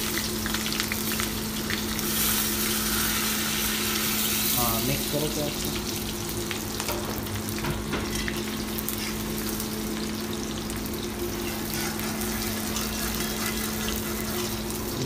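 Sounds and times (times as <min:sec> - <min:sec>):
onions sizzling in hot oil: 0:00.0 - 0:15.0
metal spatula scraping a wok: 0:11.5 - 0:14.7.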